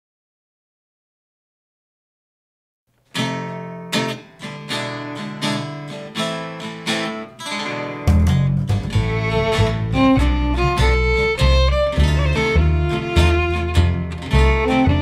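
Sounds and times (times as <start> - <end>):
acoustic guitar strumming: 3.0 - 15.0.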